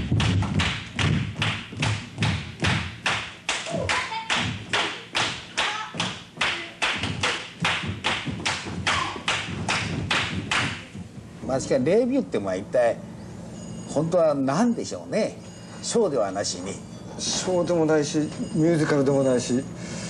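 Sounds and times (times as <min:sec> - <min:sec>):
steady beat of sharp strikes: 0:00.0 - 0:11.2
feet thudding on floor: 0:07.0 - 0:11.3.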